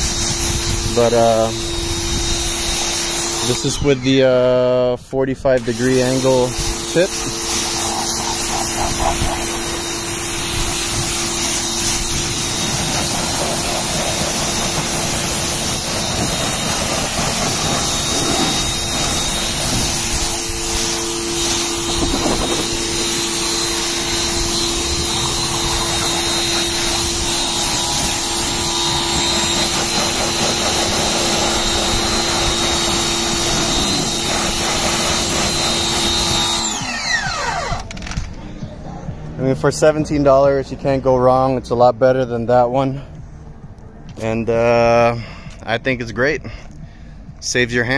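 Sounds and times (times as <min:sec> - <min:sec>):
water jet spraying on car: 0:00.0 - 0:03.8, 0:05.6 - 0:36.7
pressure washer motor humming: 0:00.0 - 0:04.8, 0:05.4 - 0:38.0.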